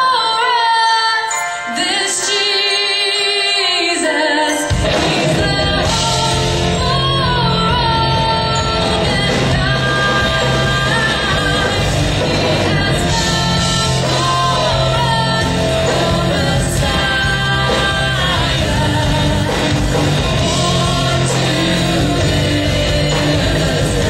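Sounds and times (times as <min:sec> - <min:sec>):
person singing: 0:00.0 - 0:24.0
band playing: 0:01.3 - 0:24.0
bass holding low notes: 0:05.3 - 0:24.0.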